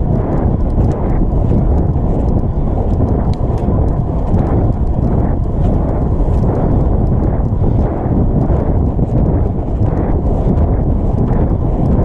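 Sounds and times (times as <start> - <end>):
loud rumbling noise: 0.0 - 12.0.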